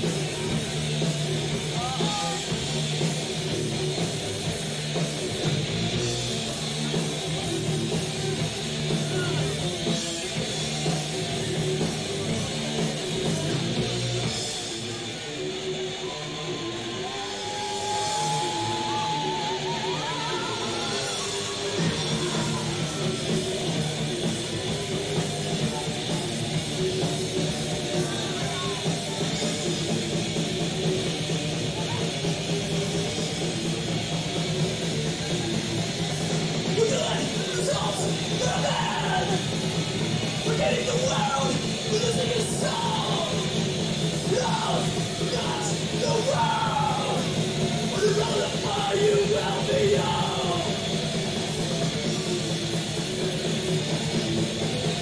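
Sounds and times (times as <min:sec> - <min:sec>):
drum kit: 0:00.0 - 0:16.1, 0:17.0 - 0:55.0
distorted electric guitars riffing: 0:00.0 - 0:55.0
metal band playing loud: 0:00.0 - 0:55.0
shouted vocals: 0:01.7 - 0:02.6, 0:15.9 - 0:23.8, 0:27.9 - 0:29.4, 0:36.7 - 0:39.5, 0:40.3 - 0:43.6, 0:44.2 - 0:51.0.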